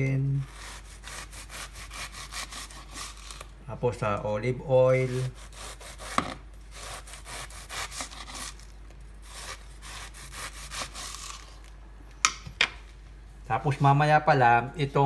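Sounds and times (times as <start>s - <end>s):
knife sawing through cabbage: 0.4s - 3.4s, 5.0s - 8.6s, 9.2s - 11.5s.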